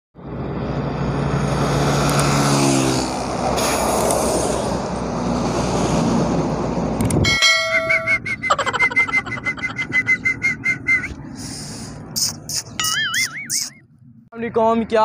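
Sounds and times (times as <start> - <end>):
truck passing: 0.2 - 14.3
highway traffic passing: 0.2 - 15.0
bell-like ringing tones: 7.3 - 8.3.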